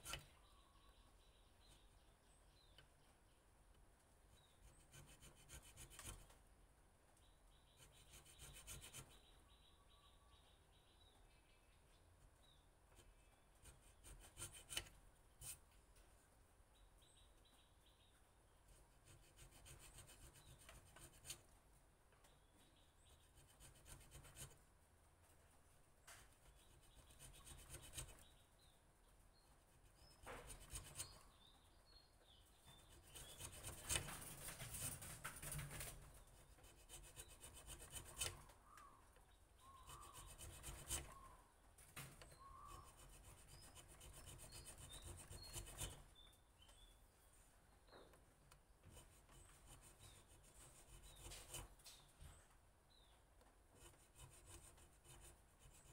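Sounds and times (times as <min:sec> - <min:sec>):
hand chisel scraping wood: 0:00.0 - 0:00.4, 0:04.6 - 0:06.3, 0:07.8 - 0:09.2, 0:13.0 - 0:15.6, 0:23.4 - 0:24.6, 0:26.5 - 0:28.3, 0:29.9 - 0:31.4, 0:32.7 - 0:35.9, 0:36.6 - 0:38.5, 0:39.7 - 0:41.4, 0:42.2 - 0:46.0, 0:48.9 - 0:52.0.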